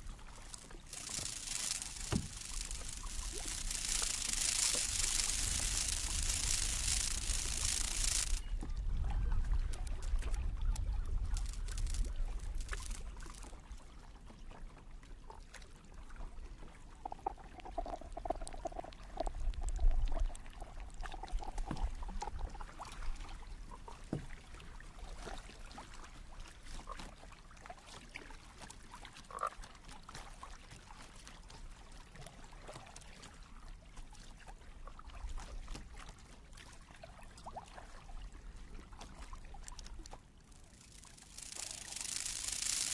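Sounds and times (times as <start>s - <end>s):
grainy frog-like croaking: 0.0s - 8.5s, 9.7s - 13.5s, 40.6s - 42.9s
low rumble of water: 0.0s - 42.9s.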